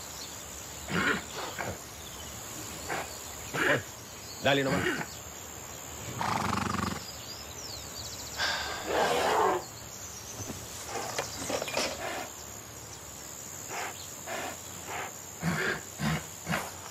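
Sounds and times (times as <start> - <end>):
horse groaning: 8.7 - 9.6, 13.7 - 16.9
horse breathing hard: 10.8 - 12.4, 13.7 - 16.9.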